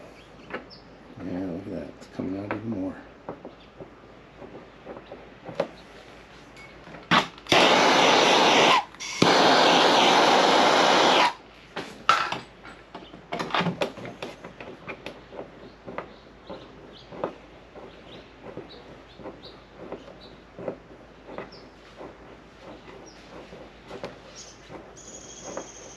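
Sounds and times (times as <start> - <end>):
gas torch flame hissing: 7.1 - 11.5.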